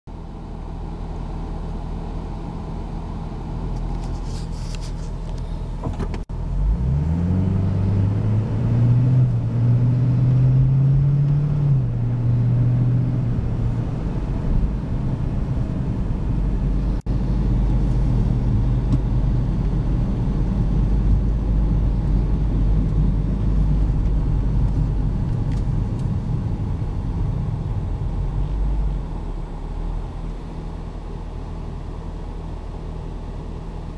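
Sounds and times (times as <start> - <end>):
road rumble: 0.1 - 33.9
car engine accelerating: 5.8 - 31.5.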